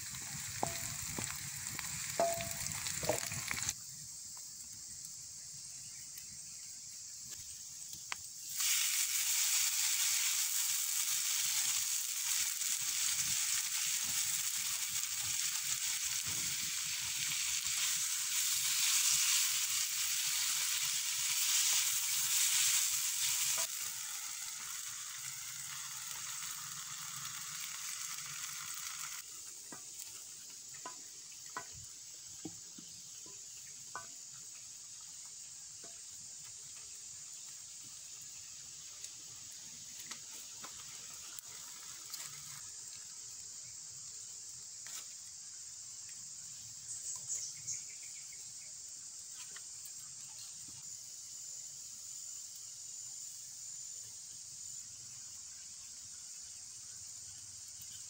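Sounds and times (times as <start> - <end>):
food sizzling in a wok: 0.0 - 58.0
spatula tapping wok: 0.4 - 1.4, 2.0 - 3.5.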